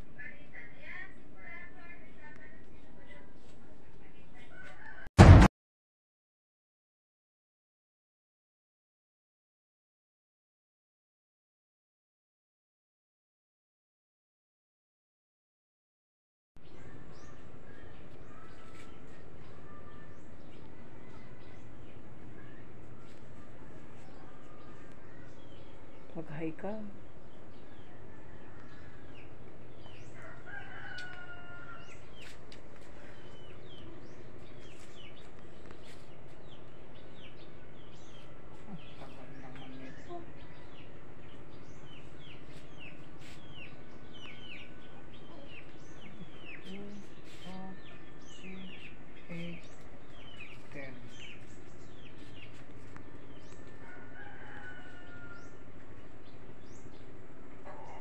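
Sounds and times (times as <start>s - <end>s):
small birds chirping: 16.6s - 58.0s
rooster crowing: 20.8s - 21.9s, 27.8s - 29.3s, 30.0s - 32.3s, 53.4s - 55.7s.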